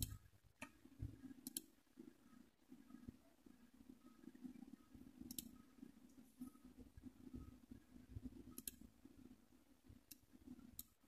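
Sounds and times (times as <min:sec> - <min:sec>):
computer mouse clicks: 0:00.0 - 0:01.7, 0:05.2 - 0:05.6, 0:08.5 - 0:08.9, 0:10.0 - 0:11.0
faint low hum: 0:00.0 - 0:11.0.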